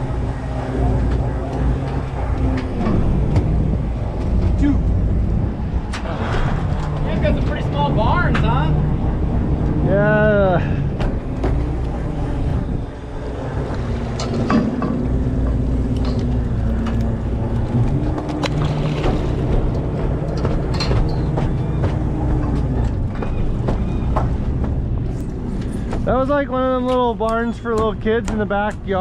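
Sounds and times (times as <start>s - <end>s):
machinery drone: 0.0s - 29.0s
gear knocking against rail: 10.9s - 29.0s.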